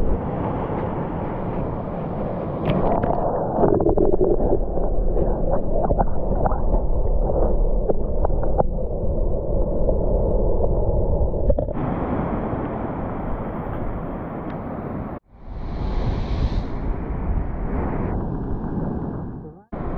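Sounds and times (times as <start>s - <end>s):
muffled underwater water sloshing: 2.6s - 11.8s.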